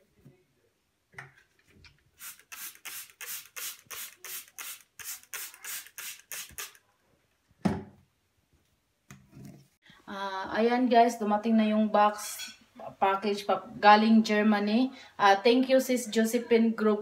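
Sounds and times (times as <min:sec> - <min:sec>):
spray bottle hissing sprays: 0:02.2 - 0:06.8.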